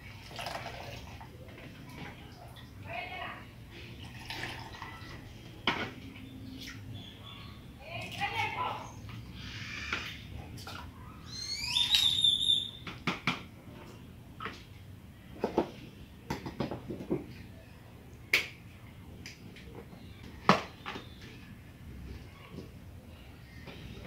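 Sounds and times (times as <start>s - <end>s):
water splashing into blender jar: 0.2s - 1.1s
bird call: 11.2s - 12.8s.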